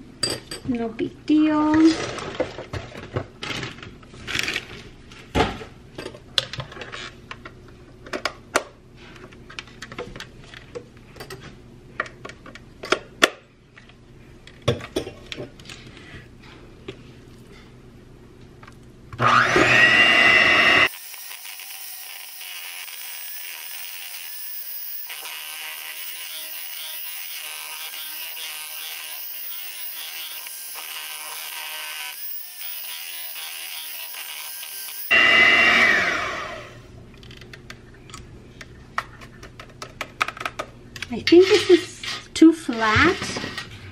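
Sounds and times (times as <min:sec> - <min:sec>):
electric hand mixer whining: 0:19.2 - 0:36.9.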